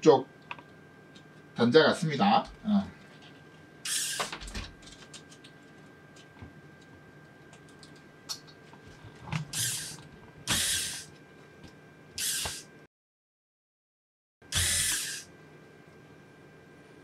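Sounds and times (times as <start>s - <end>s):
electric screwdriver running: 3.9s - 4.3s, 9.5s - 11.0s, 12.2s - 12.6s, 14.5s - 15.2s.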